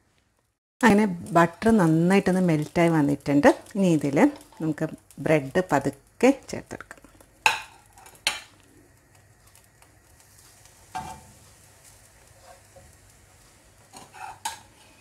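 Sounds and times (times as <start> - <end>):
butter sizzling in a frying pan: 0.9 - 15.0
spatula scraping a pan: 10.8 - 11.4, 12.3 - 12.9, 13.8 - 15.0.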